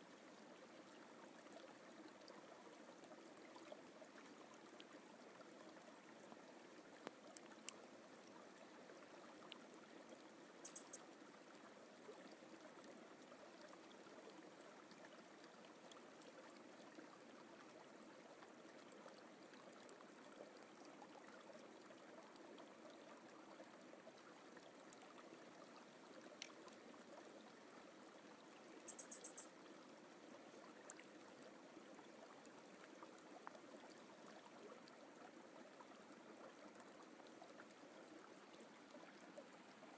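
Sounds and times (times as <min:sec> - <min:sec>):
high-pitched bird chirps: 0:10.6 - 0:11.0, 0:28.9 - 0:29.5.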